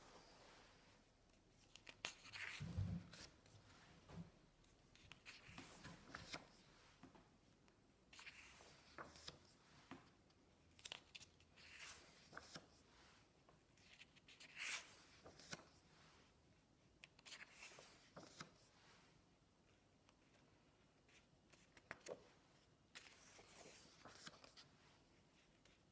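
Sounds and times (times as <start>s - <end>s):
paper pages rustling: 1.6s - 3.8s, 4.9s - 7.0s, 8.2s - 10.1s, 10.8s - 13.2s, 13.8s - 15.8s, 17.1s - 18.8s, 21.1s - 25.8s.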